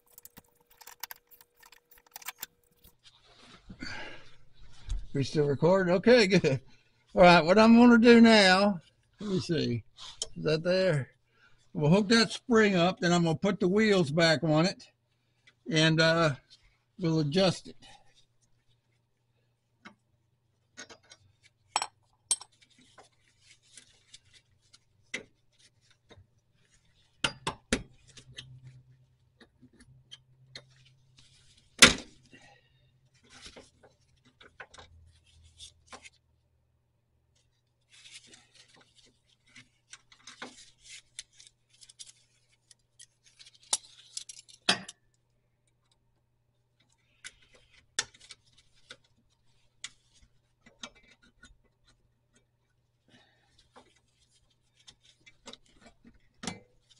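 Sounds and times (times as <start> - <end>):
metal tools clinking: 0.0 - 2.9.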